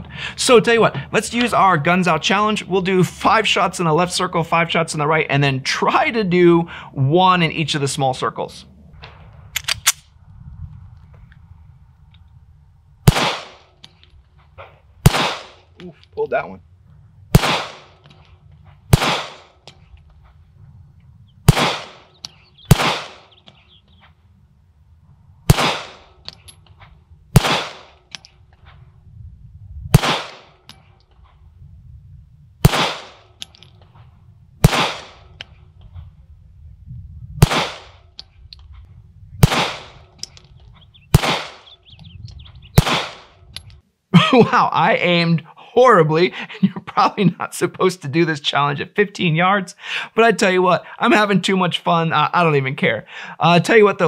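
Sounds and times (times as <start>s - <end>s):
pistol shots echoing: 13.0s - 13.8s, 15.0s - 15.7s, 17.3s - 18.0s, 18.9s - 19.6s, 21.4s - 23.4s, 25.5s - 26.2s, 27.3s - 28.1s, 29.9s - 30.6s, 32.6s - 33.4s, 34.6s - 35.4s, 37.4s - 38.0s, 39.4s - 40.0s, 41.1s - 41.8s, 42.8s - 43.3s.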